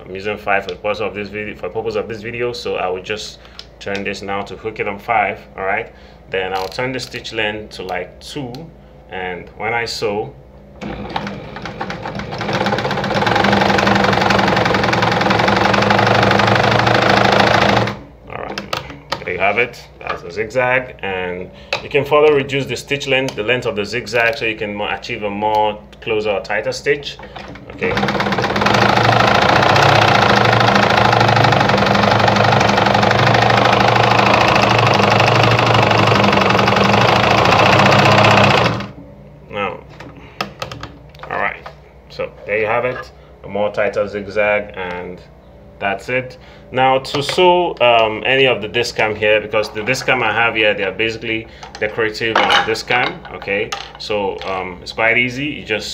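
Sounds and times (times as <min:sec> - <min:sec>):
sewing machine running: 0:10.8 - 0:18.0, 0:27.7 - 0:39.0.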